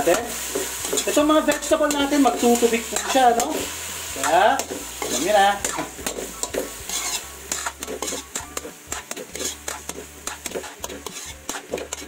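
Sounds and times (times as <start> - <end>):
food sizzling: 0.0 - 12.0
spatula scraping and clacking on wok: 0.0 - 12.0.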